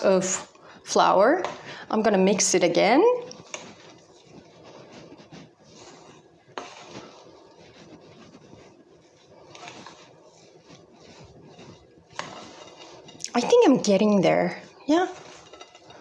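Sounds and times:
hand squishing dough: 3.3 - 16.0.

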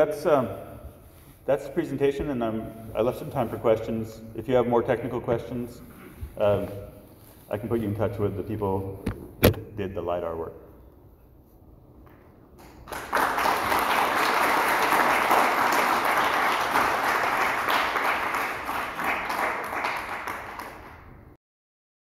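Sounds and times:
audience applauding: 12.6 - 21.3.

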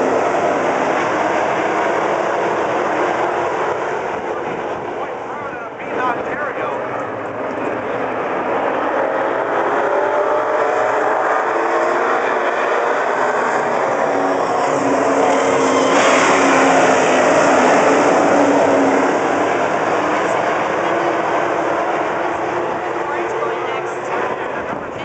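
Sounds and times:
race car engines at full throttle: 0.0 - 25.0.

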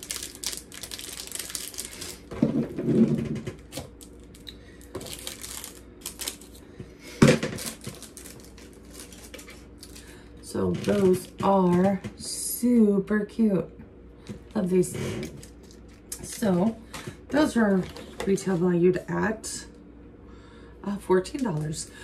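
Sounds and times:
plastic packaging crinkling: 0.0 - 2.4, 3.4 - 6.7, 7.4 - 11.9, 15.2 - 17.0.

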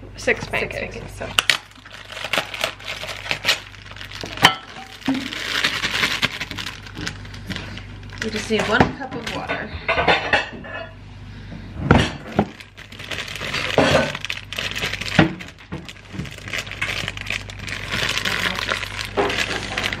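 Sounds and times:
paper bag crinkling: 1.4 - 9.5, 12.2 - 20.0.

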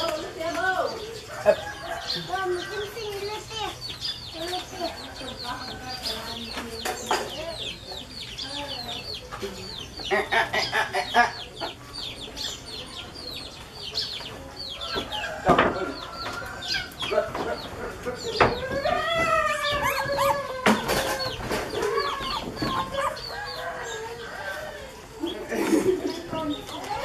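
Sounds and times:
chickens clucking: 0.0 - 27.0.

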